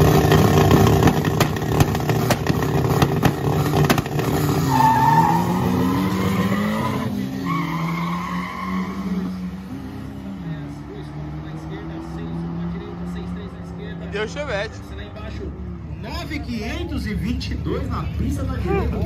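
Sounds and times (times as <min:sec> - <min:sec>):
race car engine revving: 0:00.0 - 0:19.0
engine crackling pops: 0:00.1 - 0:04.3.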